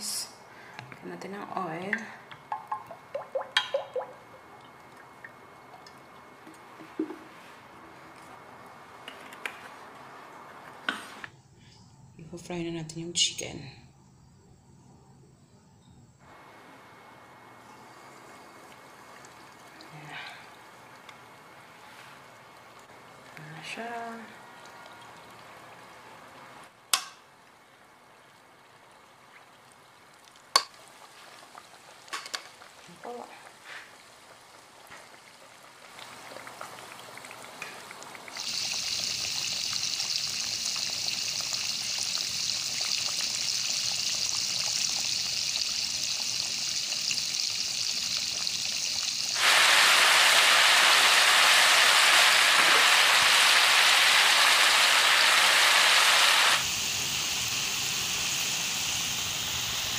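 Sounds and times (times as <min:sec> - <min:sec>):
chicken deep-frying in oil: 0:16.2 - 0:59.9.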